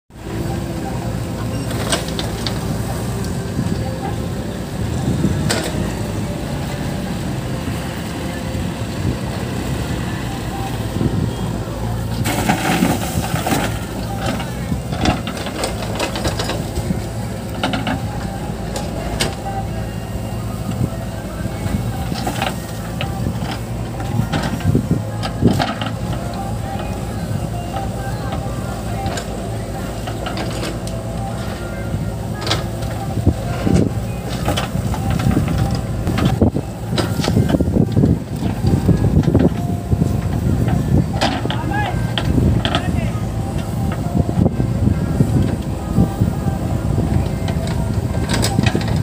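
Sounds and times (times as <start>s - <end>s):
diesel engine running: 0.1s - 49.0s
bucket and arm clanks: 12.1s - 16.9s, 27.5s - 31.7s, 32.3s - 44.5s
soil clods dropping into trolley: 12.2s - 16.6s.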